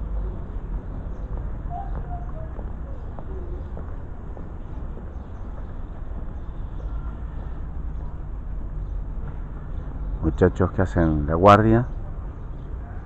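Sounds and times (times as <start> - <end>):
low outdoor background rumble: 0.0 - 13.0.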